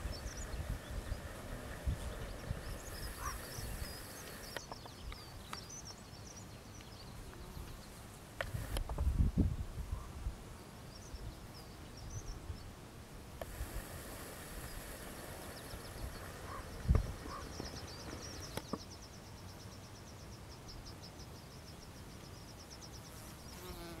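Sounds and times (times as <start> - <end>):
insect chirping: 0.0 - 4.8, 13.4 - 24.0.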